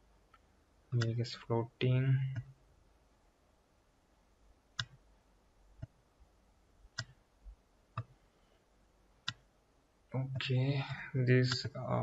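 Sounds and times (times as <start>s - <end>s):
computer mouse clicking: 4.8s - 5.0s, 7.0s - 7.2s.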